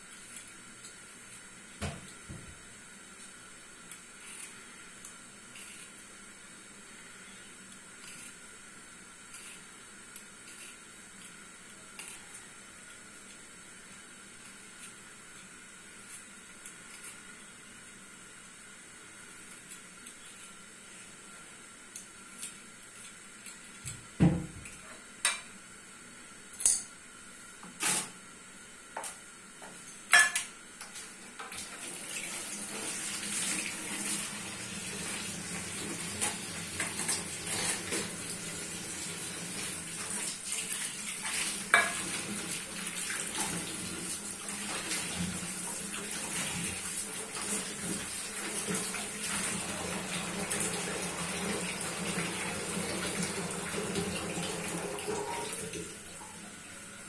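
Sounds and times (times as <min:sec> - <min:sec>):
dishes and utensils clattering: 0:30.1 - 0:30.5, 0:41.7 - 0:42.1
kitchen tap running into sink: 0:31.5 - 0:56.0.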